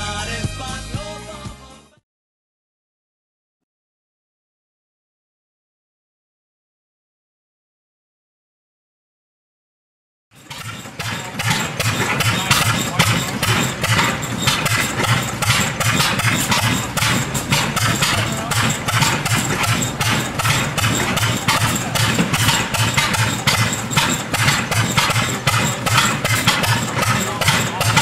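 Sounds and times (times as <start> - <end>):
stationary engines exhaust popping: 10.4 - 28.0.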